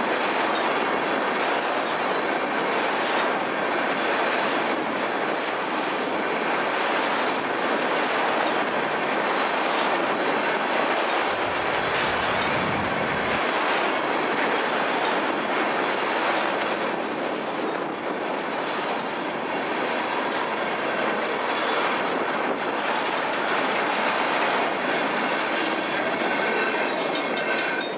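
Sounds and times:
freight train rolling past: 0.0 - 27.9
faint wheel squeal: 25.3 - 27.9.

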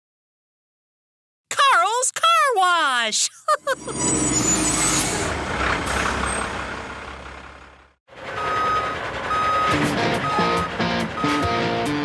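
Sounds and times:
garbage truck engine rumbling: 3.6 - 12.0
truck reversing alarm beeping: 3.8 - 11.8.

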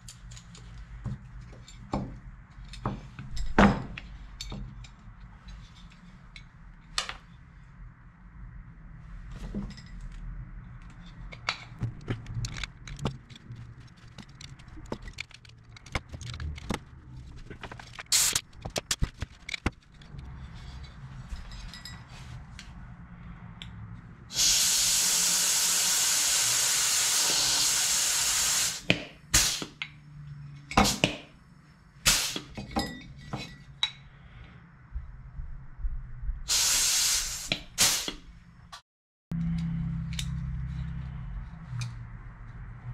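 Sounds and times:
compressed air hissing: 24.3 - 29.8, 32.0 - 32.6, 36.5 - 38.2.

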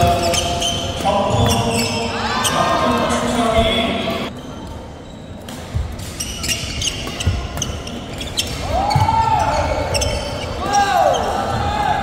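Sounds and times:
shoe squeal on court floor: 0.0 - 3.1, 4.1 - 5.4, 6.0 - 11.6.

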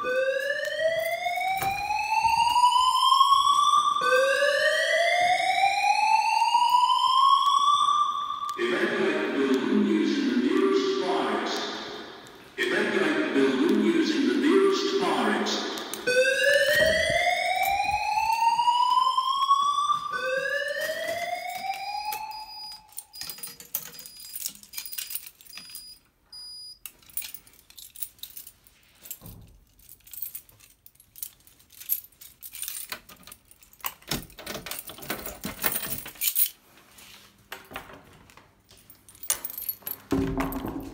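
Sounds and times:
fire alarm whoop sweeps: 0.0 - 8.6, 16.0 - 23.2.

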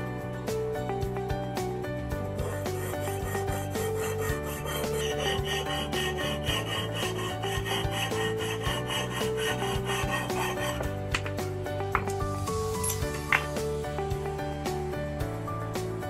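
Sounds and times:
background music with bass: 0.0 - 16.0
saw rasping through metal sheet: 2.4 - 11.2.

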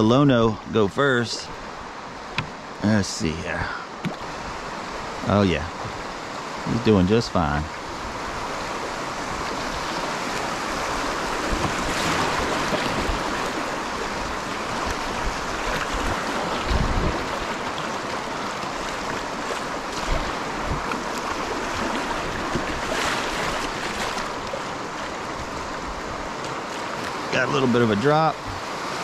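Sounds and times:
rushing river rapids: 0.0 - 29.0
water splashing on kayak: 7.7 - 29.0.

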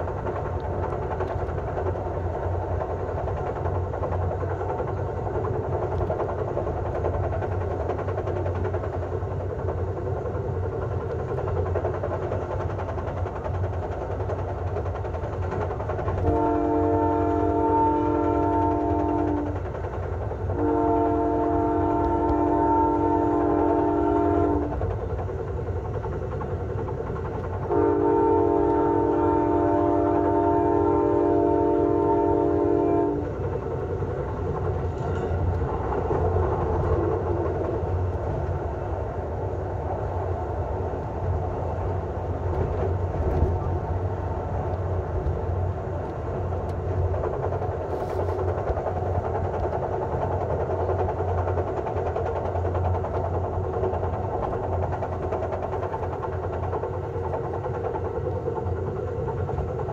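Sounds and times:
train running rumble: 0.0 - 59.9
locomotive air horn blasts: 16.2 - 19.6, 20.6 - 24.7, 27.7 - 33.3.

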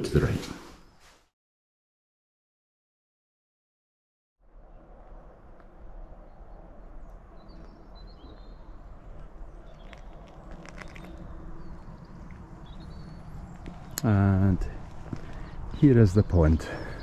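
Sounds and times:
steady outdoor rumble: 4.4 - 17.0
footsteps on tarmac: 7.4 - 15.9.

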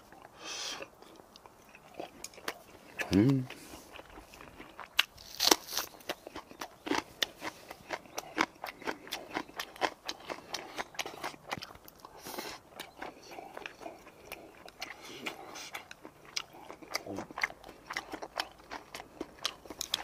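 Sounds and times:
crunching green onion: 3.9 - 11.9.

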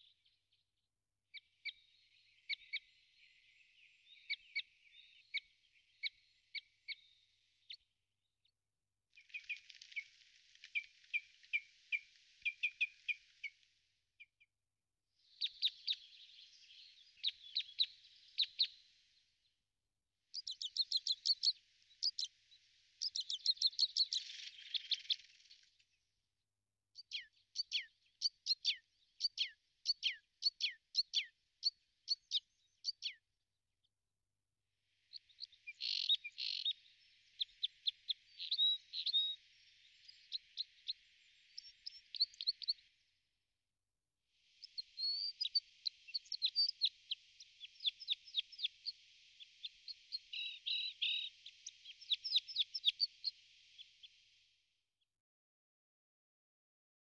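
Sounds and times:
small songbirds chirping: 0.0 - 14.5, 15.2 - 19.6, 20.3 - 26.1, 27.0 - 33.3, 34.9 - 43.2, 44.4 - 54.8.

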